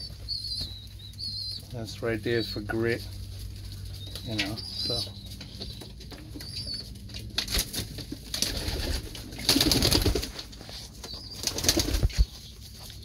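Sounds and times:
pigeons in a loft: 0.0 - 13.0
wing flapping: 7.4 - 10.6, 11.2 - 12.4.

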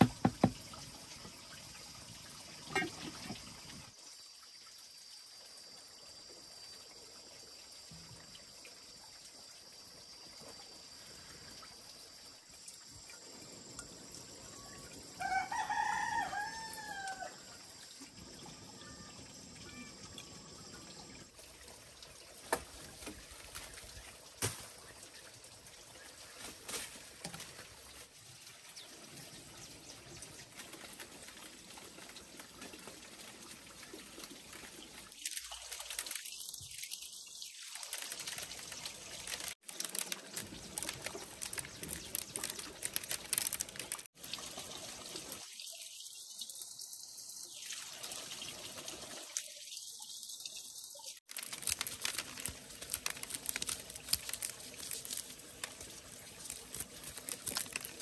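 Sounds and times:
corn kernels pattering into tray: 37.7 - 44.1, 51.3 - 58.0.

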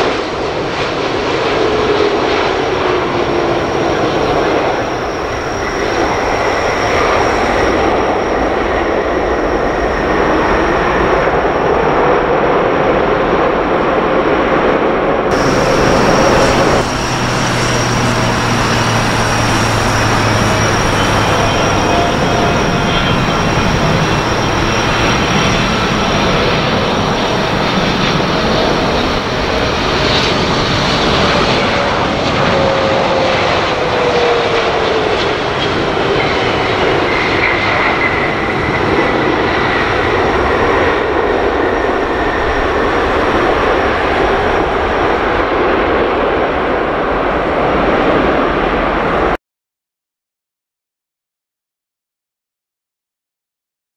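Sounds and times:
jet engine roar: 0.0 - 49.4
engine whine falling in pitch: 15.3 - 35.5.

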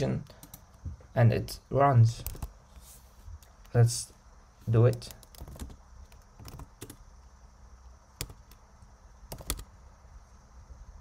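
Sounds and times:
computer keyboard keystrokes: 2.2 - 2.5, 4.9 - 7.0, 8.2 - 8.6, 9.3 - 9.7.

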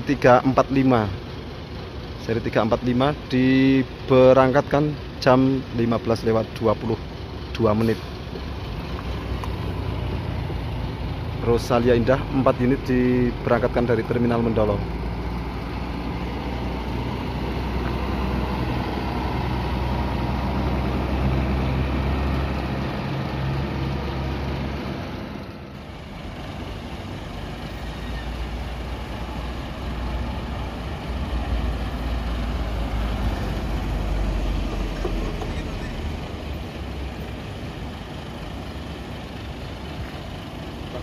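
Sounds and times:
bus engine droning: 0.0 - 41.0
second bus engine: 0.0 - 41.0.

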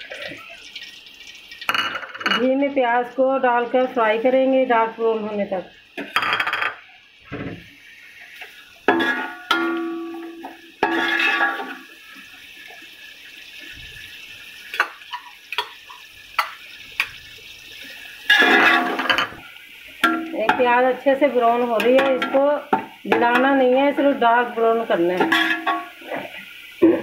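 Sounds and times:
onions sizzling: 0.0 - 27.0
metal spoon scraping metal pot: 10.8 - 11.7, 18.3 - 19.4, 25.2 - 26.3.

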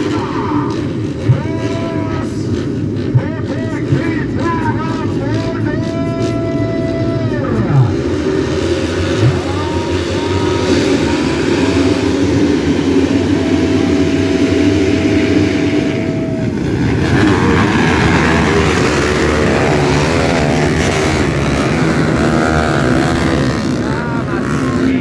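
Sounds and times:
motocross bikes revving: 0.0 - 25.0.

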